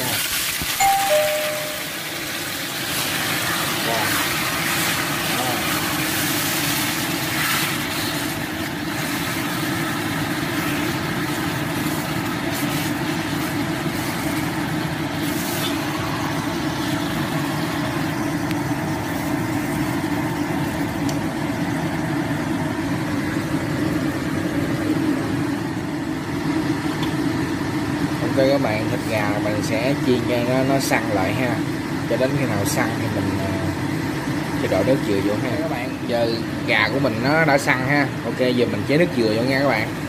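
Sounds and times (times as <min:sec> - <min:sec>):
chicken sizzling in a wok: 0:00.0 - 0:28.1.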